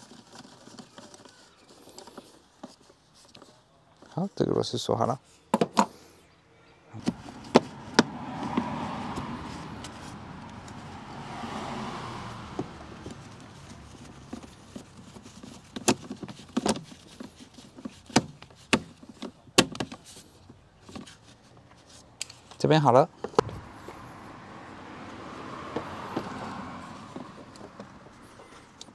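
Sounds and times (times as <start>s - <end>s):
soft rushing noise: 23.4s - 28.2s.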